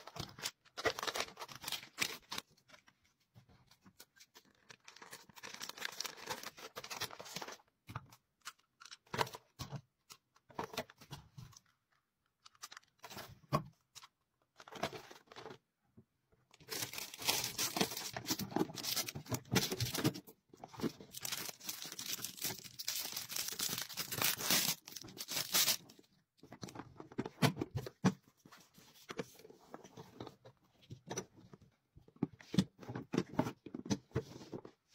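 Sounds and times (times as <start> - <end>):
plastic and paper crinkling: 0.0 - 3.0, 3.8 - 7.7, 16.5 - 27.2.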